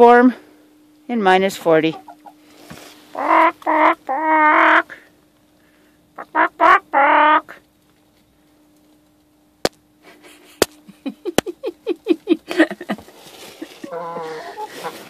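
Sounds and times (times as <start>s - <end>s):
hen squawking: 1.9s - 2.4s, 3.1s - 5.0s, 6.2s - 7.6s, 13.8s - 15.0s
hens clucking: 1.9s - 2.4s, 3.1s - 5.0s, 6.2s - 7.5s, 12.9s - 15.0s.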